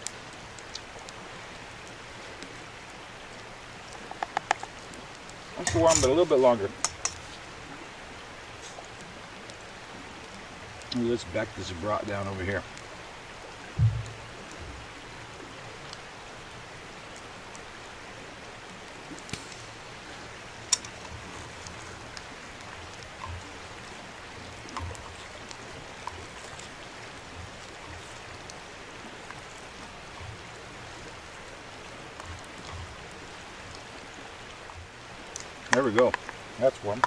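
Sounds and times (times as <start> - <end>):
campfire popping: 0.0 - 37.0
flowing river water: 0.0 - 37.0.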